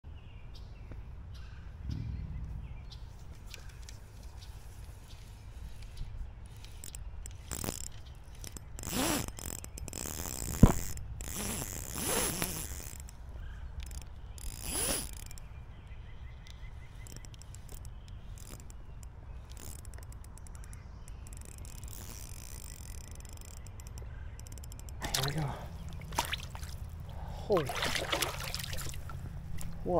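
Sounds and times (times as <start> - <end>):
fishing reel whirring and ratcheting: 6.4 - 13.2, 13.8 - 15.4, 17.0 - 25.0.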